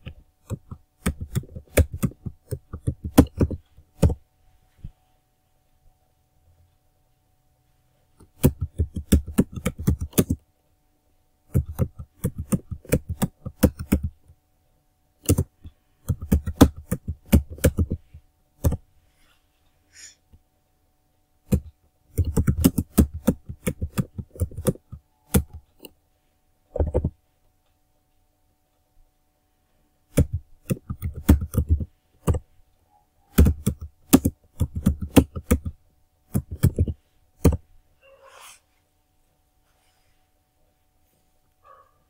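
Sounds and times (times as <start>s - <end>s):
typing on computer keyboard: 0.0s - 4.2s, 8.2s - 10.4s, 11.5s - 14.2s, 15.2s - 18.8s, 21.5s - 25.9s, 26.7s - 27.2s, 30.1s - 32.4s, 33.3s - 37.6s.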